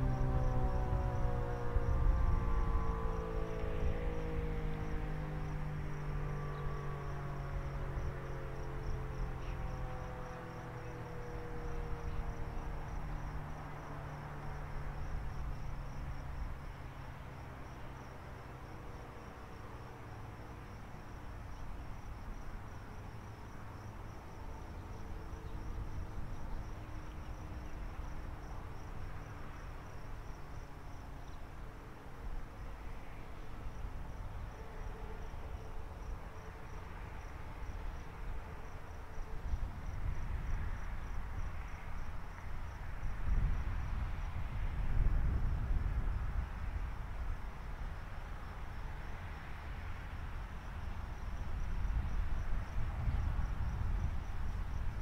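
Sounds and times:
warning siren winding down: 0.0 - 12.8
cricket chirping: 0.0 - 55.0.

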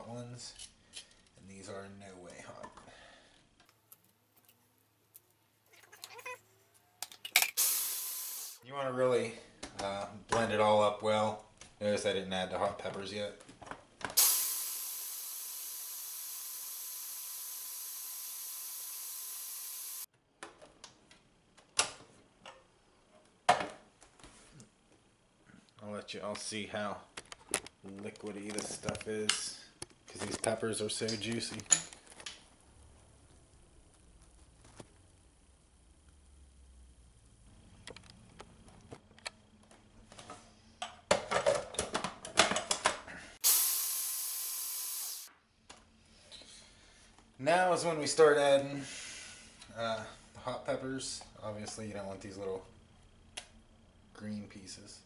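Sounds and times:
food processor whining: 14.2 - 20.1.

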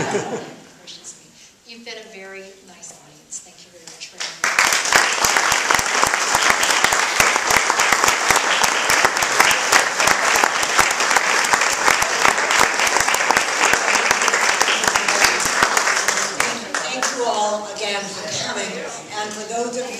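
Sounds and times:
audience applauding: 4.4 - 17.3.

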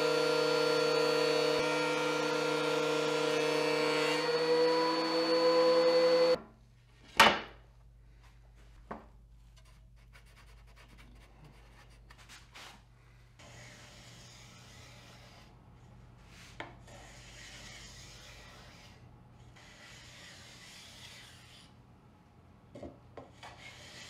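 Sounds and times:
thickness planer humming and whining: 0.0 - 6.4.

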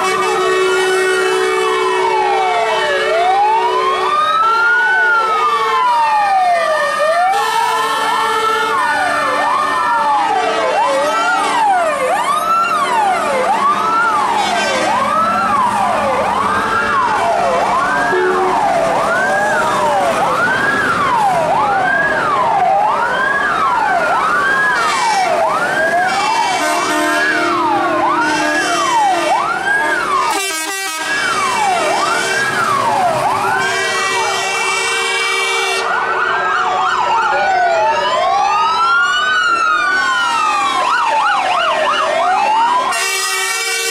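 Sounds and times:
fire truck sirens wailing: 0.0 - 43.9.

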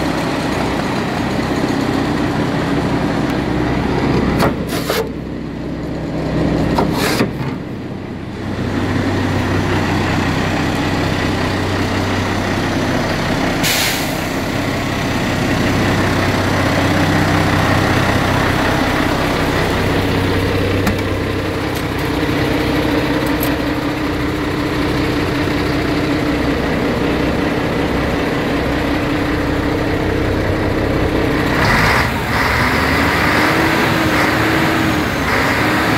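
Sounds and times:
diesel truck engine idling: 0.0 - 35.9
air release hiss: 13.6 - 14.3.

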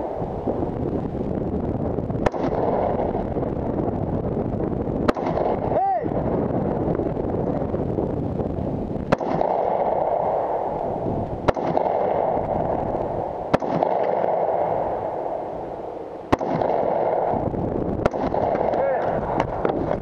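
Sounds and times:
steady rushing noise: 0.0 - 20.0
rifle shots: 2.2 - 3.4, 5.0 - 6.3, 9.1 - 15.6, 16.3 - 20.0.

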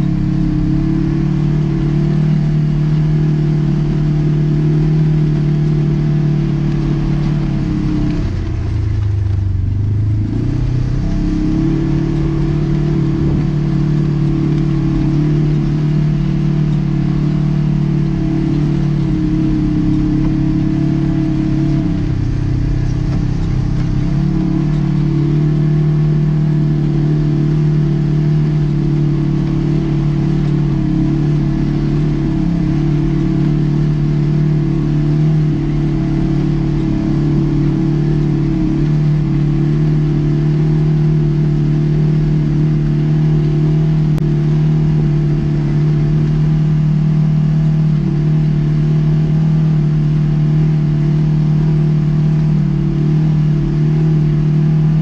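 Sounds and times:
vehicle engine running: 0.0 - 55.0.

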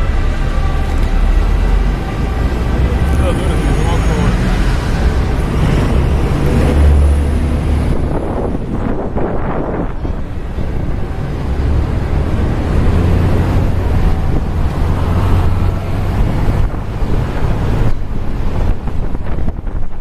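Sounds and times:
bus engine: 0.0 - 20.0
street traffic: 0.0 - 20.0
wind buffeting microphone: 4.3 - 20.0.

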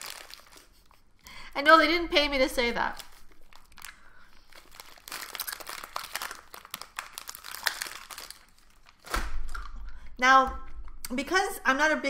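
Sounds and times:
plastic packaging crinkling: 0.0 - 1.0, 1.6 - 9.8.

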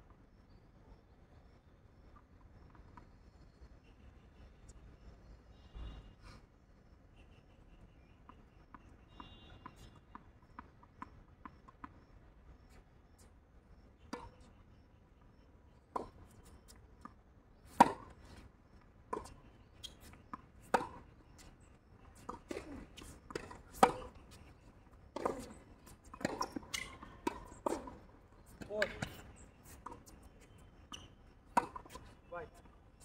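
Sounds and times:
tennis ball struck by racket: 17.8 - 18.2, 20.6 - 21.4, 22.2 - 24.3, 25.2 - 29.2, 31.5 - 32.0
ball bouncing on hard court: 22.3 - 24.2, 25.2 - 25.6.

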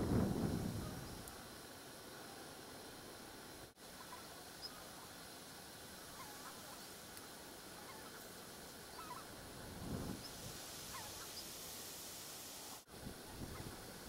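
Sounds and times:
background hiss: 0.0 - 14.0
geese honking: 4.0 - 4.9, 6.1 - 6.9, 7.7 - 8.2, 8.9 - 9.4, 10.9 - 11.4.

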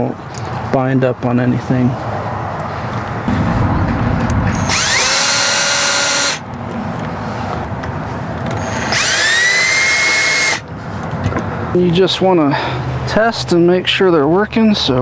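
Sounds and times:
cordless drill whining: 4.7 - 6.4, 8.6 - 10.6.

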